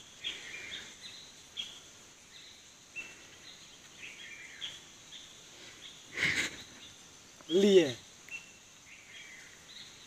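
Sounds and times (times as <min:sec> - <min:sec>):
bird chirps: 0:00.0 - 0:10.0
faint steady hiss: 0:00.0 - 0:10.0.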